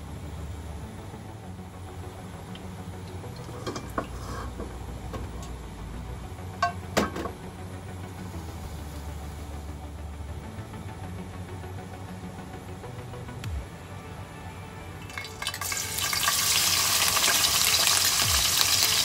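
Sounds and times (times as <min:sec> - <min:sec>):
gas burner humming: 0:02.6 - 0:05.6, 0:15.1 - 0:19.0.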